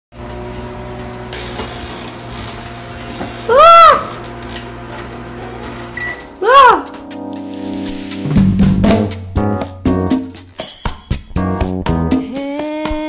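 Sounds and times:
microwave oven humming: 0.2s - 6.4s
meow-like cry: 6.4s - 6.9s.

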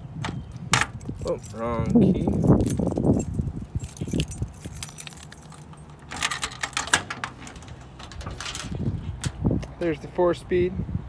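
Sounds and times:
keys jangling: 0.9s - 8.8s.

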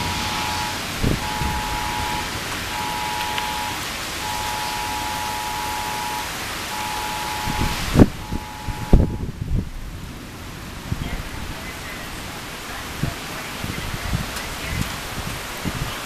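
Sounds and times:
phone emergency alert tone: 0.0s - 9.4s
heavy rain hissing: 0.0s - 16.0s.

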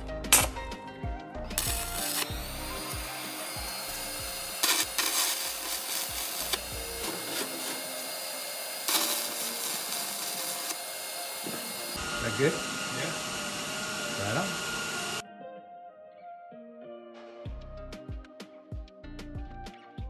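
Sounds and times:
welding arc crackling: 1.6s - 12.5s.

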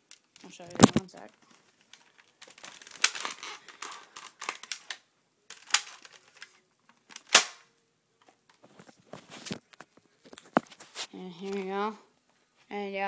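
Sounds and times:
toy gun crack: 2.4s - 7.7s.

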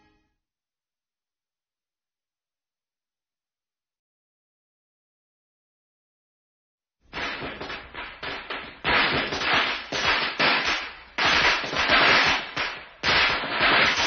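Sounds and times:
firecrackers cracking: 7.1s - 14.0s.

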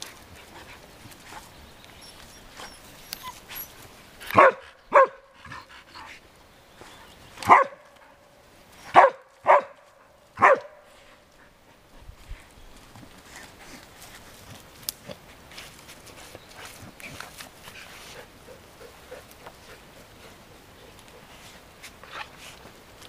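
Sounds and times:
dog barking: 4.3s - 5.3s, 7.5s - 7.9s, 8.9s - 9.8s, 10.4s - 10.8s.

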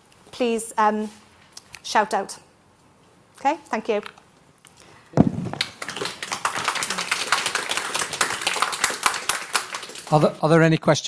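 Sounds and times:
audience applauding: 5.2s - 10.4s.

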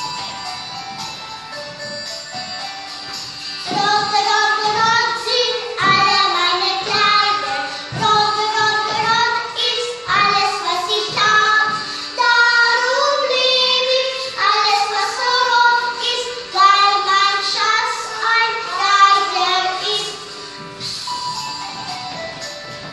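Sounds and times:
instrumental accompaniment with beat: 0.0s - 14.5s, 18.7s - 22.9s
girls singing together: 3.4s - 20.8s.

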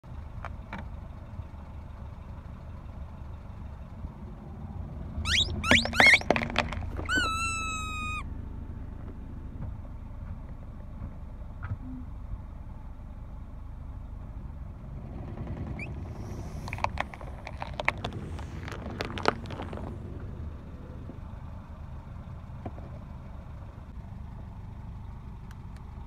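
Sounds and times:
low car engine running: 0.0s - 26.0s
long whistling squeak: 5.2s - 6.3s, 7.0s - 8.3s
rubber toys squeaking: 5.2s - 8.2s, 15.6s - 19.9s.

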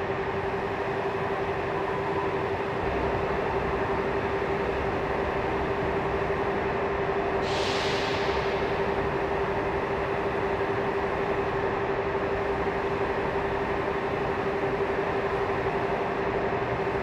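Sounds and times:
trains idling hum: 0.0s - 17.0s.

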